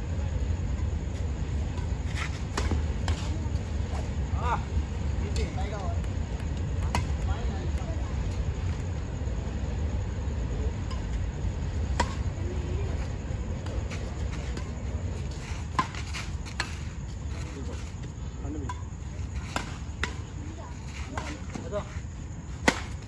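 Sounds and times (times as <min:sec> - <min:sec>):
low background rumble: 0:00.0 - 0:23.0
rackets striking shuttlecock: 0:22.6 - 0:23.0.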